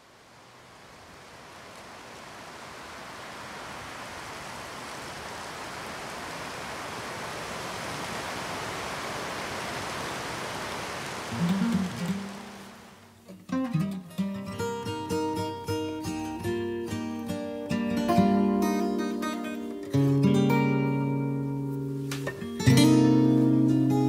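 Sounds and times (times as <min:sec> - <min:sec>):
steady rushing hiss: 0:00.0 - 0:13.4.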